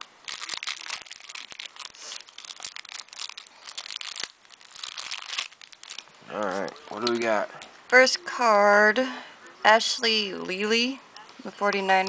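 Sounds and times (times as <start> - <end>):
plastic wrapping crinkling and tearing: 0.0 - 8.0.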